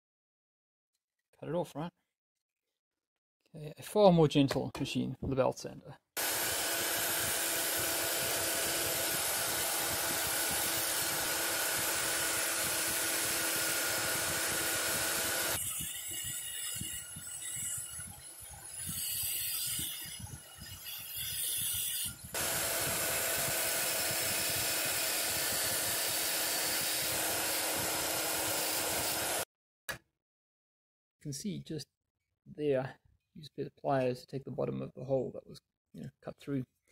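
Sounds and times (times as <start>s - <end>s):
belt sander running: 6.2s - 16.4s, 22.3s - 29.4s.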